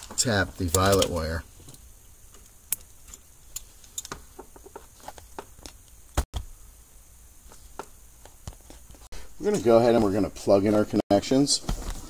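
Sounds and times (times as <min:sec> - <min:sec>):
wiring handling: 0:00.0 - 0:06.4.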